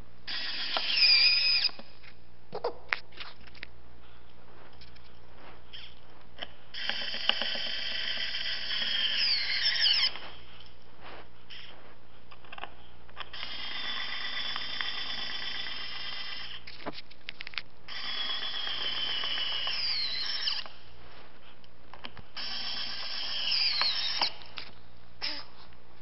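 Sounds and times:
power drill whining: 0:00.3 - 0:01.8, 0:06.8 - 0:10.4, 0:13.3 - 0:16.7, 0:17.9 - 0:20.8, 0:22.4 - 0:24.5, 0:25.2 - 0:25.5
drill clicks: 0:00.3 - 0:01.9, 0:05.8 - 0:10.2, 0:12.4 - 0:20.8, 0:22.0 - 0:25.4.

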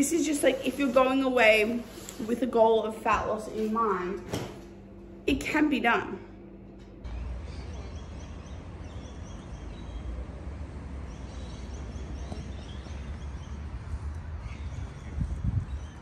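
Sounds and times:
birds chirping: 0:07.1 - 0:16.0.

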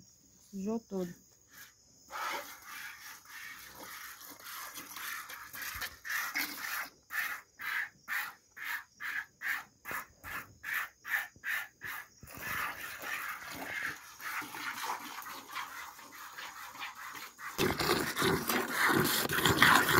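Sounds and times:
milk squirting into a pail: 0:01.5 - 0:07.9, 0:11.9 - 0:19.9.

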